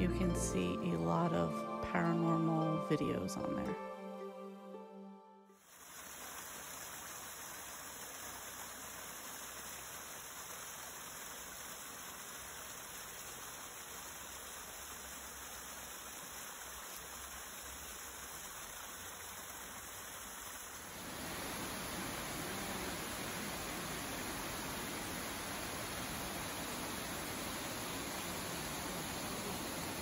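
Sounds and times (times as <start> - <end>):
water rushing down rocks: 5.6 - 30.0
waterfall rushing: 20.6 - 30.0.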